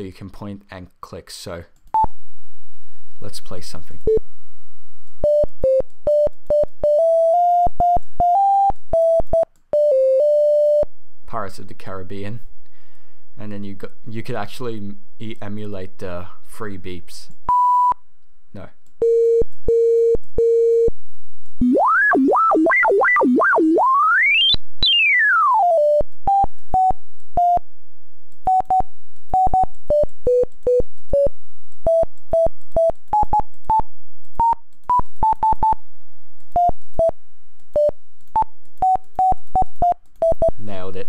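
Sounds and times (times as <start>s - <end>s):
warbling tone sliding in pitch: 21.6s - 25.8s
buzzy electronic beeps: 21.6s - 27.6s
electronic beep melody: 21.6s - 27.6s.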